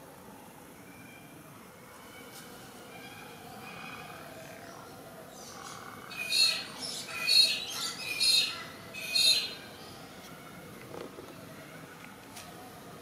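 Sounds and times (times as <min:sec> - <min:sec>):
crow calling: 0:05.6 - 0:09.7.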